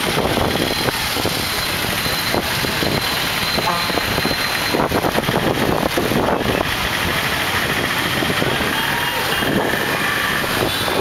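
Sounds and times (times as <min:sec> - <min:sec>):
motorcycle and car engines running: 0:00.0 - 0:11.0
people talking: 0:08.2 - 0:10.2.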